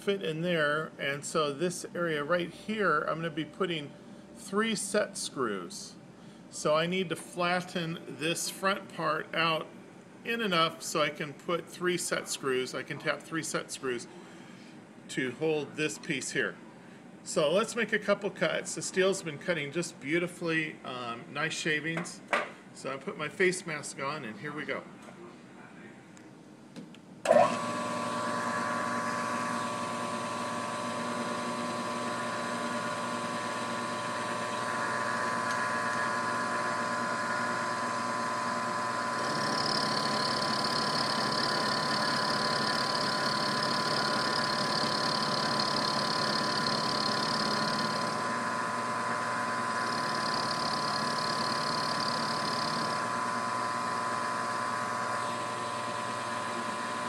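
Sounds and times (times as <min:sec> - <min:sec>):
end mill cutting steel: 0:27.3 - 0:57.0
milling machine motor whine: 0:27.3 - 0:57.0.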